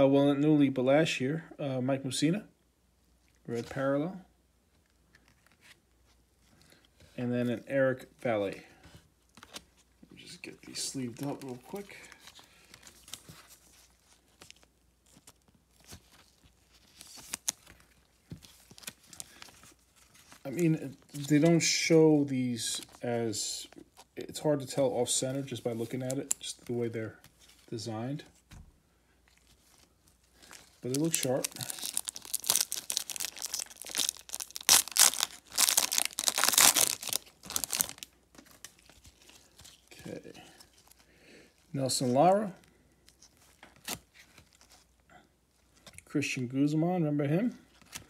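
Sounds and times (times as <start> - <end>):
cards rustling and clicking: 9.3 - 21.8, 29.3 - 40.0
wrapper crinkling: 9.3 - 21.9, 29.2 - 41.7
foil card pack tearing: 30.4 - 39.9
sharp crinkle: 30.4 - 39.9.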